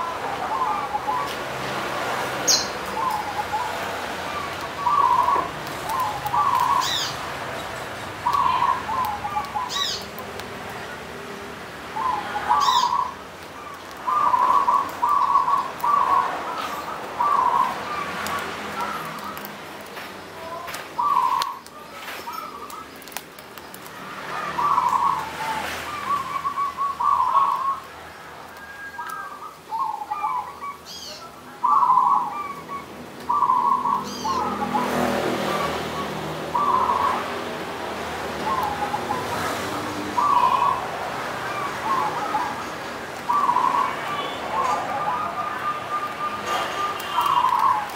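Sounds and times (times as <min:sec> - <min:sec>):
dove cooing: 0:00.0 - 0:01.4, 0:02.5 - 0:07.2, 0:08.2 - 0:10.1, 0:12.0 - 0:13.2, 0:14.0 - 0:19.5, 0:20.5 - 0:21.6, 0:24.3 - 0:27.8, 0:28.6 - 0:37.5, 0:38.3 - 0:47.9
small birds chirping: 0:00.0 - 0:47.9.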